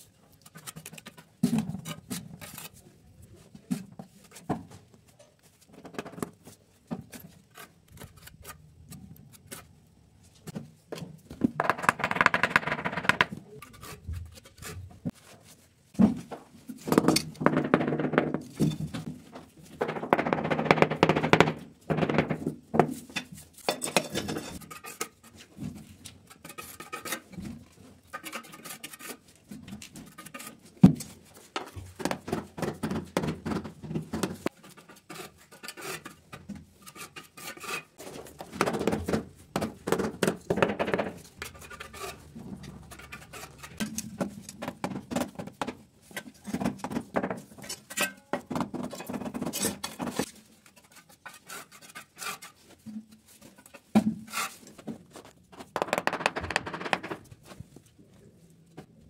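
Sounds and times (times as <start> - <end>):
trowel scraping and clinking: 23.1 - 25.3.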